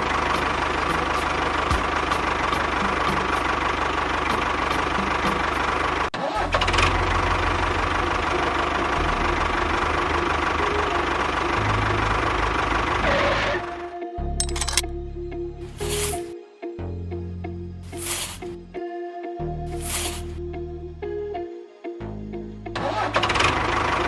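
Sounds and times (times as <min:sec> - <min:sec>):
tractor engine idling: 0:00.0 - 0:13.1.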